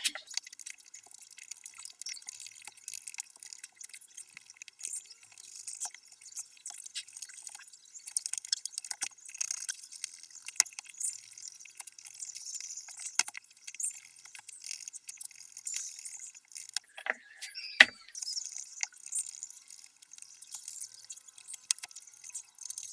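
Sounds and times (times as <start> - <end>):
clicks and clinks of small objects: 0.0 - 22.9.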